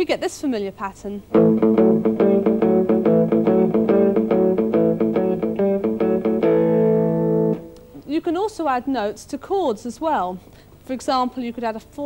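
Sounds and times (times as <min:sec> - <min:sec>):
electric guitar rock riff: 0:01.3 - 0:07.9.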